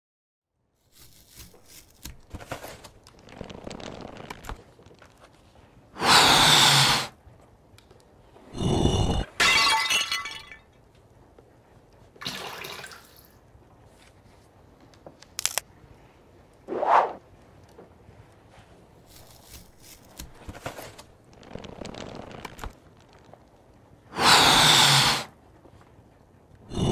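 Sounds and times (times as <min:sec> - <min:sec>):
faint clicks and rustles: 0:00.8 - 0:05.9, 0:07.2 - 0:08.4, 0:17.3 - 0:24.1, 0:25.4 - 0:26.6.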